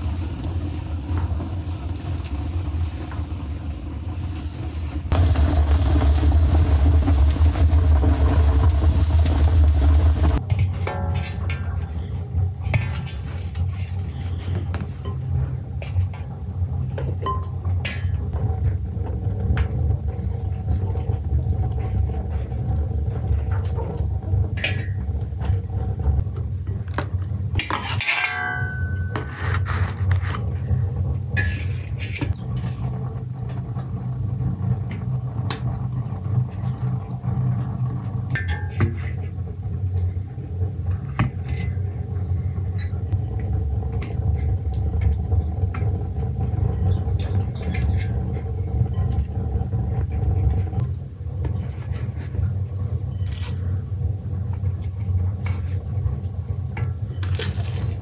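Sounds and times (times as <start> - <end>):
low rumble: 0.0 - 27.6
pots and utensils clinking: 27.6 - 29.4, 38.3 - 39.3.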